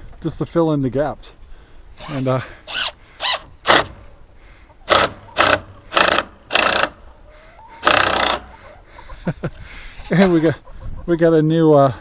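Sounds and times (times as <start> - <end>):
cordless drill whirring: 2.0 - 3.8.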